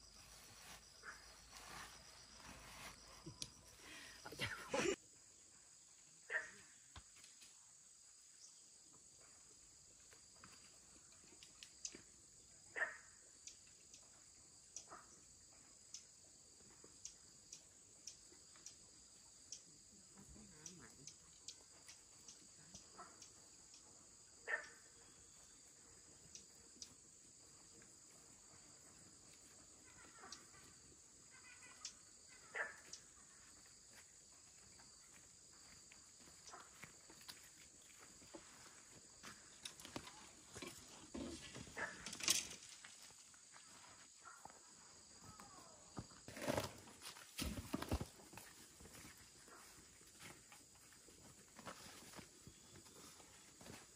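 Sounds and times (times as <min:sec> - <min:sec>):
crickets chirring: 0:00.0 - 0:53.9.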